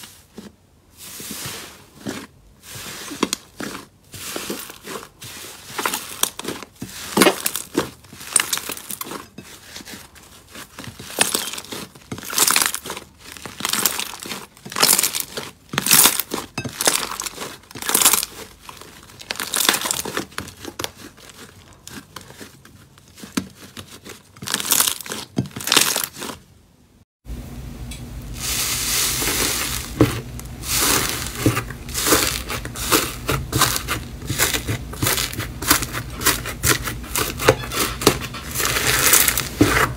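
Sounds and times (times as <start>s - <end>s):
grainy slime crackling: 0.0s - 26.5s, 28.4s - 39.9s
slime crackling and popping: 5.8s - 9.4s, 10.0s - 26.4s, 28.6s - 39.6s.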